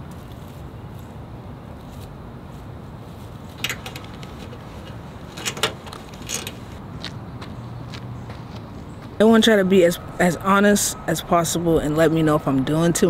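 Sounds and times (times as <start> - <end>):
clicking and rustling handling noises: 3.5 - 6.8.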